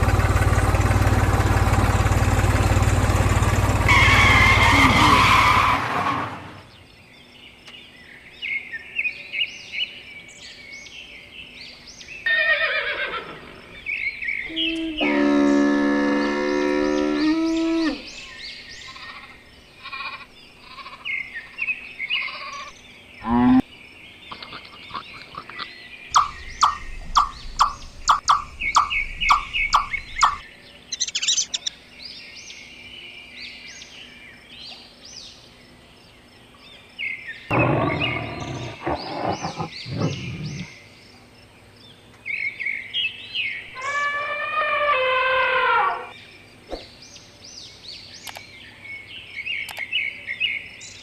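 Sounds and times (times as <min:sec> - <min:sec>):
birds chirping: 0:00.0 - 0:51.0
low-pitched animal call: 0:03.9 - 0:06.5, 0:14.4 - 0:18.2, 0:22.2 - 0:23.7, 0:37.5 - 0:40.7, 0:43.7 - 0:46.2
short evenly spaced calls: 0:24.2 - 0:31.9.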